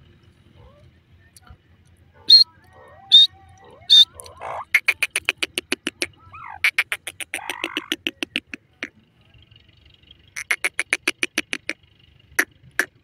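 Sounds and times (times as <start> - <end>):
francolin calling: 2.2 - 9.0.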